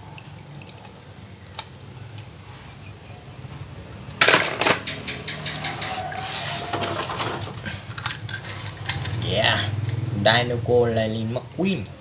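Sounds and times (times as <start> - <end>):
toy cars rattling in plastic tub: 4.2 - 9.6.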